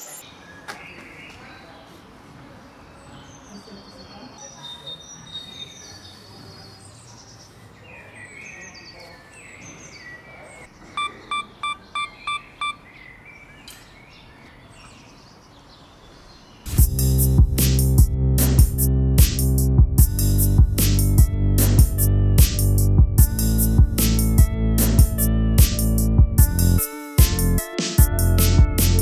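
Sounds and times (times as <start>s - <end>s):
birds chirping: 0.0s - 16.8s
short electronic beeps: 11.0s - 12.8s.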